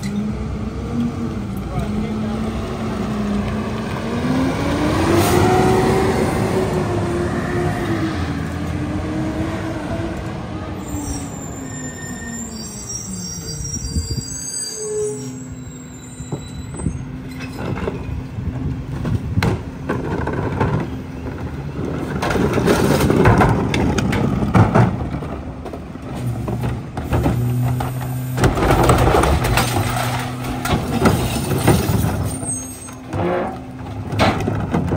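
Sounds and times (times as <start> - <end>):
garbage truck diesel engine humming: 16.6 - 34.9
carts knocking against hopper: 33.1 - 34.9.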